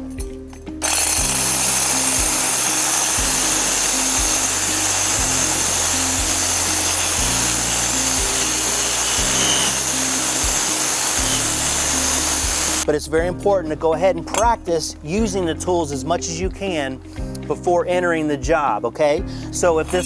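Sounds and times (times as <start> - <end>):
background music with beat: 0.0 - 20.0
angle grinder cutting tile: 0.8 - 12.8.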